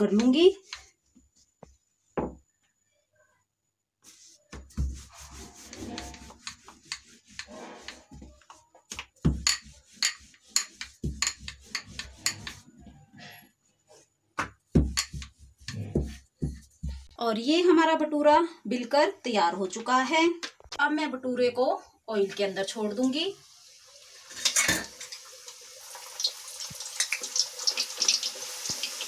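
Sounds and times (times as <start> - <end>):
rolling pin rolling dough: 4.0 - 17.1.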